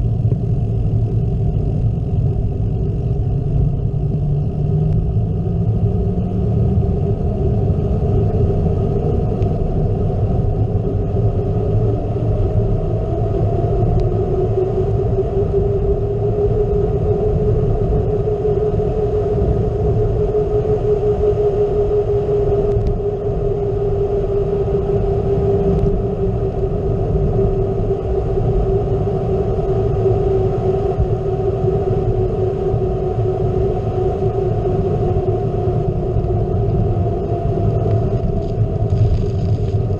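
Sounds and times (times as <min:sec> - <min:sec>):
bike tyres rolling on rough asphalt: 0:00.0 - 0:05.7, 0:37.6 - 0:39.9
steady hum: 0:00.0 - 0:39.9
wind rushing over camera: 0:00.0 - 0:39.9.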